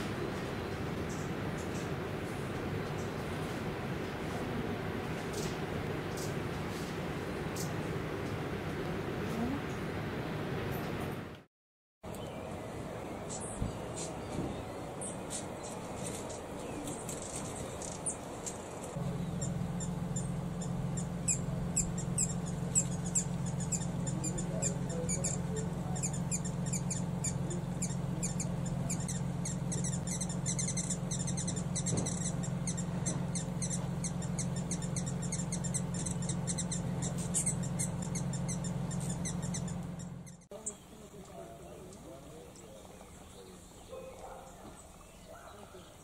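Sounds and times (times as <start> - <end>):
steady low hum: 0.0 - 11.5, 12.1 - 46.0
hummingbird chip notes: 14.2 - 43.7.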